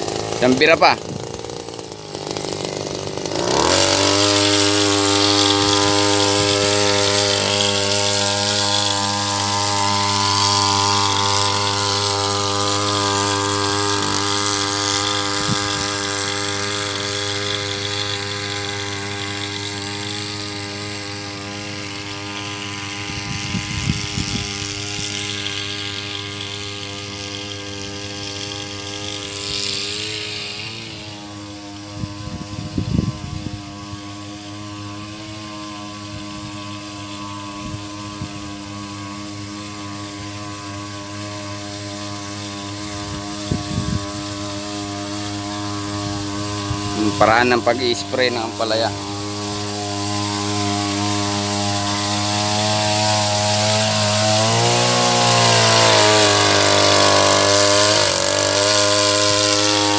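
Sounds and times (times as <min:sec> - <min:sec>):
small petrol engine revving: 0:00.0 - 0:59.9
spray mist hissing: 0:01.6 - 0:59.9.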